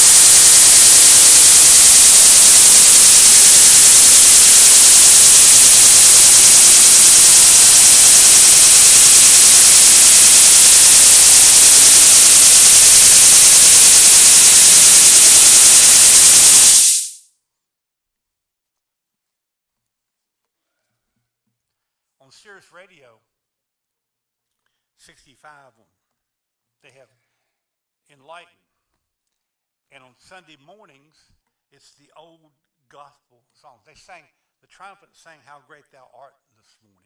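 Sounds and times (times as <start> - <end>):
static hiss: 0.0 - 17.3.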